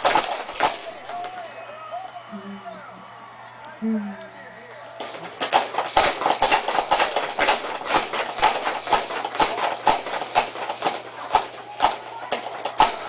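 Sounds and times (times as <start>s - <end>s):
baby jumper clattering and creaking: 0.0s - 1.5s, 5.0s - 13.0s.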